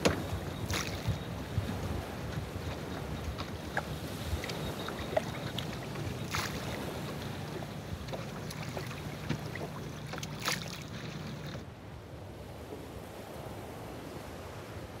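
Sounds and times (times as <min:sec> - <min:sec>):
steady low hum: 0:00.0 - 0:11.6
water splashing against hull: 0:00.0 - 0:11.6
loud splashes: 0:04.4 - 0:07.0, 0:08.5 - 0:11.2.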